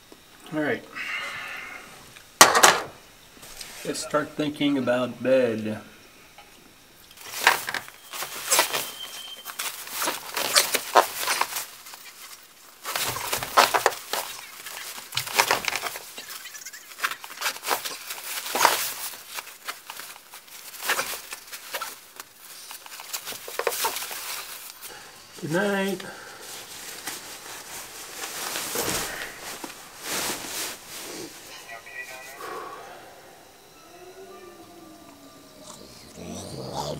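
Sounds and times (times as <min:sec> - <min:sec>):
sleeping bag rustling: 0:07.2 - 0:25.0, 0:26.2 - 0:31.5.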